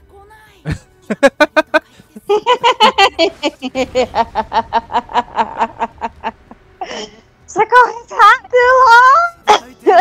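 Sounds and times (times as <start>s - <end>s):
faint music: 0.0s - 10.0s
man and woman laughing: 0.7s - 7.2s, 9.5s - 10.0s.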